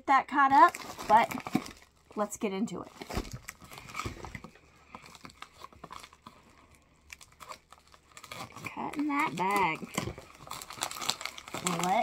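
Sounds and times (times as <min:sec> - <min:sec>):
mailer bag crinkling: 0:00.5 - 0:12.0.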